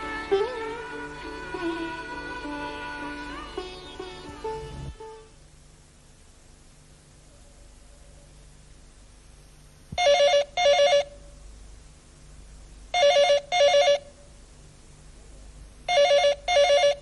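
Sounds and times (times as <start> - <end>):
landline telephone ringing: 10.0 - 11.2, 13.0 - 14.1, 15.9 - 17.0.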